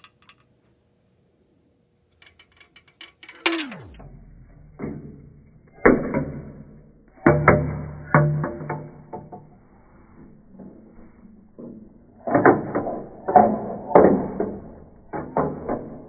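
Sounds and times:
marble clattering through plastic run: 0:02.2 - 0:03.9.

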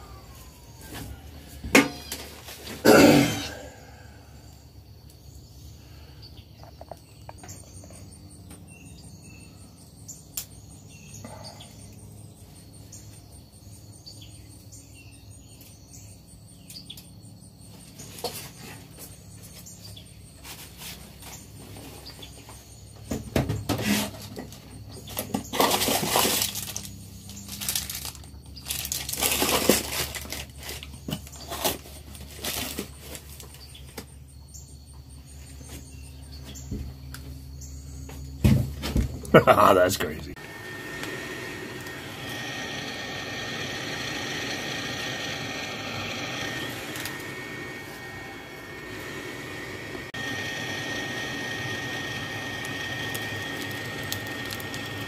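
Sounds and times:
steady low hum: 0:32.0 - 0:55.0.

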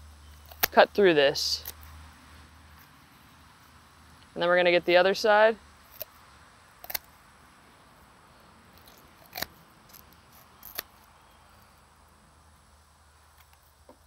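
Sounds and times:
poultry shears snipping bones: 0:00.4 - 0:00.9, 0:01.5 - 0:01.9, 0:05.9 - 0:06.1, 0:06.8 - 0:07.1, 0:08.8 - 0:11.1.

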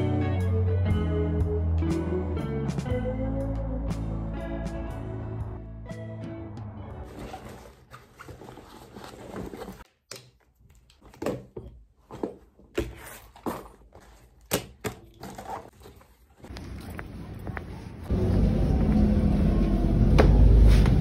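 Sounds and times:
items packed into a backpack: 0:06.9 - 0:09.9, 0:11.0 - 0:18.9.

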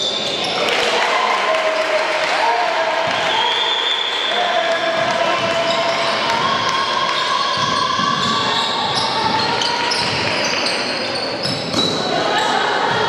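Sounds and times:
sneaker squeaks on floor: 0:00.0 - 0:00.7, 0:05.4 - 0:06.4, 0:07.1 - 0:12.5
basketball bouncing: 0:05.0 - 0:10.6.

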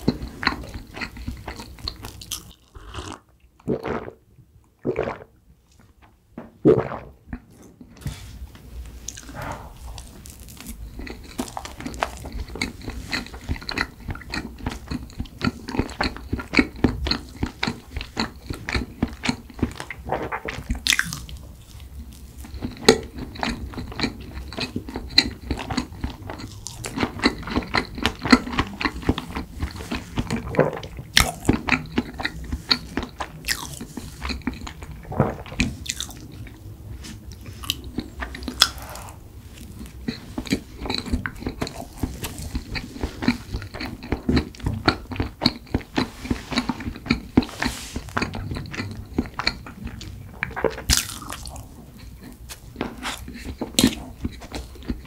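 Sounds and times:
close chewing with wet mouth smacks: 0:10.0 - 0:36.6, 0:39.6 - 0:55.0.

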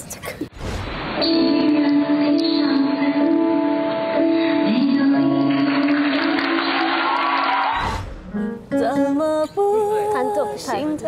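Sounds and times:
woman singing slow song: 0:01.3 - 0:05.8, 0:08.4 - 0:11.0.

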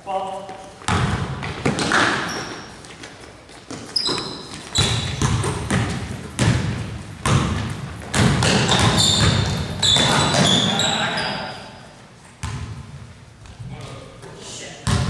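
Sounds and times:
sneakers squeaking: 0:00.3 - 0:15.0
basketball bouncing on hardwood: 0:00.9 - 0:02.4, 0:04.1 - 0:10.6, 0:12.4 - 0:12.7.

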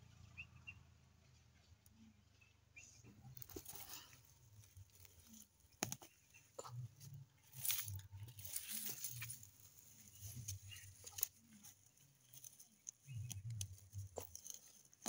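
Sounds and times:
leaves crackling underfoot: 0:03.2 - 0:15.0.

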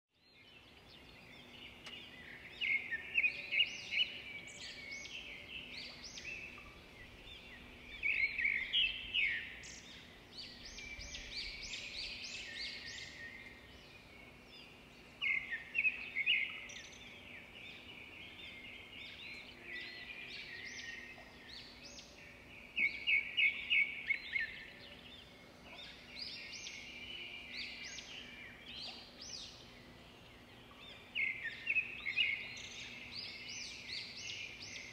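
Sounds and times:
birds chirping: 0:00.2 - 0:34.9
faint steady hum: 0:00.4 - 0:34.9.

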